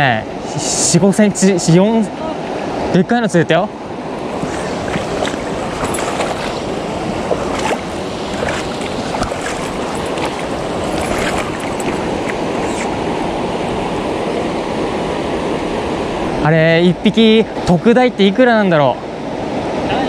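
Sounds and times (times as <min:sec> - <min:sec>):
river water rushing: 0:03.7 - 0:16.6.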